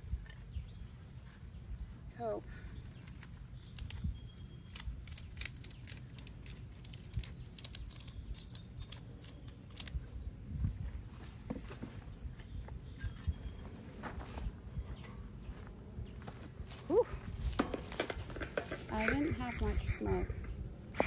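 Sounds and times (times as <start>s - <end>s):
ratchet strap clicking: 4.7s - 10.0s.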